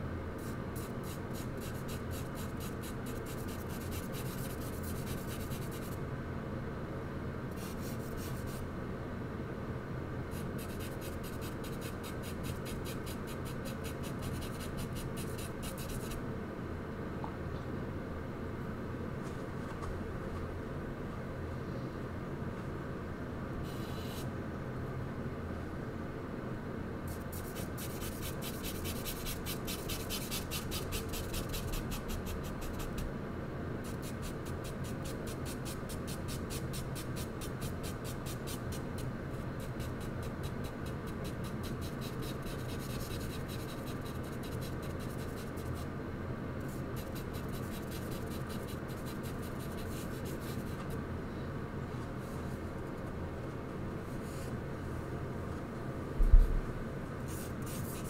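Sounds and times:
steady low hum: 0.0s - 58.0s
charcoal scratching on paper: 0.8s - 6.0s, 10.4s - 16.2s, 27.2s - 33.0s, 33.9s - 45.8s, 46.7s - 50.8s, 57.3s - 58.0s.

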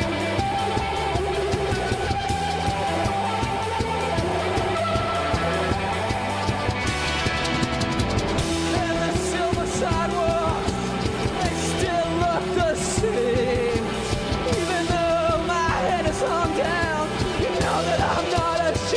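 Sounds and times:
drum kit: 0.0s - 18.9s
electric bass: 0.0s - 18.9s
person singing: 8.4s - 18.9s.

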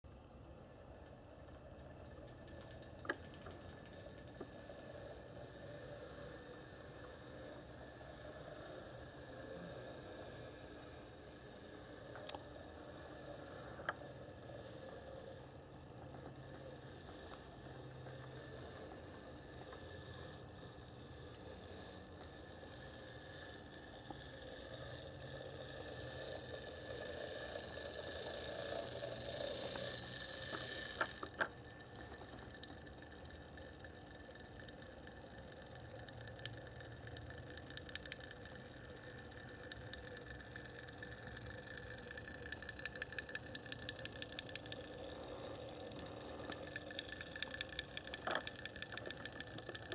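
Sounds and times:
regular ticks: 0.2s - 49.9s
model locomotive running hiss: 3.2s - 15.6s, 16.4s - 32.9s.

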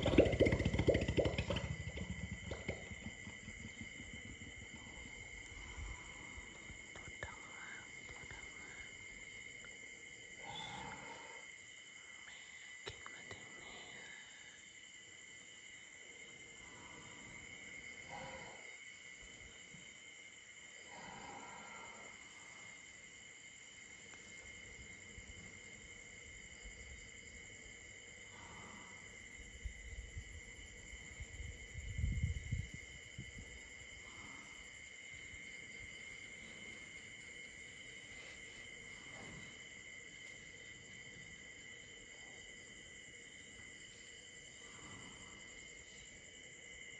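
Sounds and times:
low rumbles and thumps: 0.0s - 5.4s
crickets chirring: 0.0s - 46.9s.

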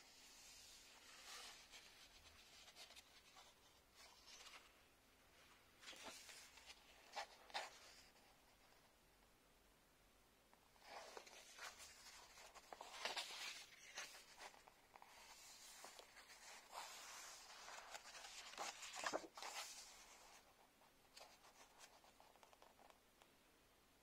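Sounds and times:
book pages rustling: 0.2s - 4.8s, 5.8s - 8.3s, 10.8s - 20.5s.

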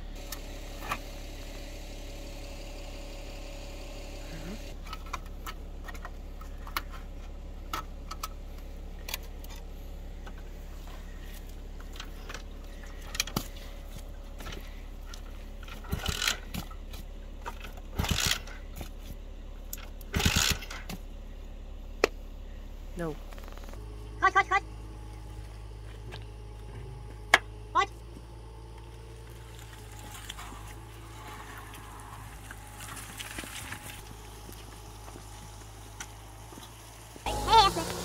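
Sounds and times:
low engine hum: 0.0s - 38.0s
rusted metal parts rattling: 4.8s - 21.1s.

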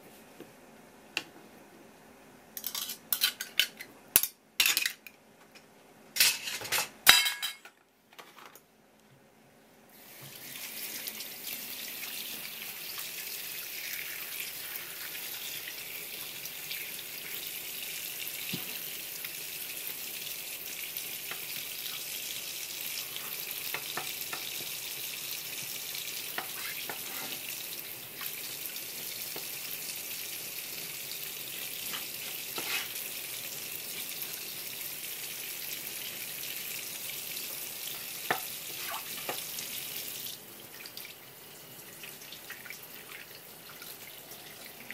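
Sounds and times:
tap water splashing on board: 38.3s - 39.5s.

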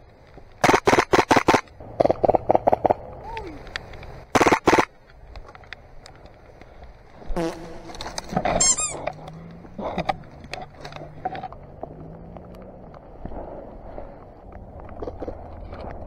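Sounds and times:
low steady hum: 0.0s - 16.0s
airsoft gun bursts: 0.6s - 1.7s, 4.3s - 4.9s.

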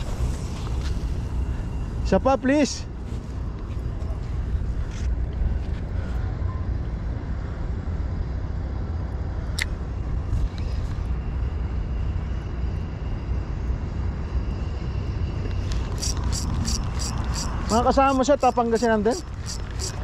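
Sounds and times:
low outdoor rumble: 0.0s - 20.0s
faint high steady tone: 16.6s - 20.0s.

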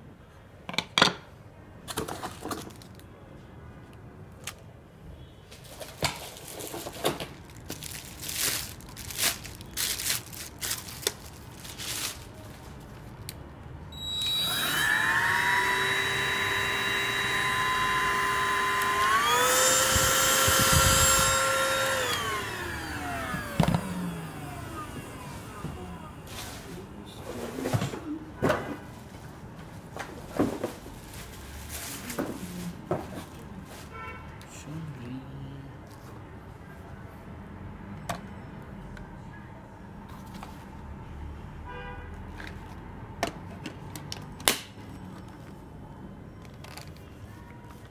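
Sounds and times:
plastic wrap rustling: 5.7s - 13.2s, 30.2s - 34.0s
vacuum cleaner motor whine: 13.9s - 26.7s.

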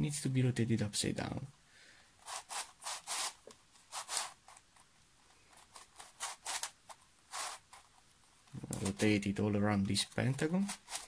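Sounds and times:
plastic puzzle pieces rasping: 2.3s - 9.2s, 9.9s - 11.0s.

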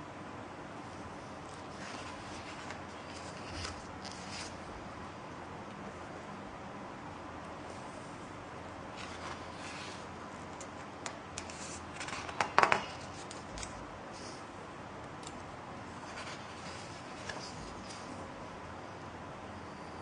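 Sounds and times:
book pages turning: 1.4s - 4.6s, 8.9s - 14.4s, 15.2s - 18.2s.

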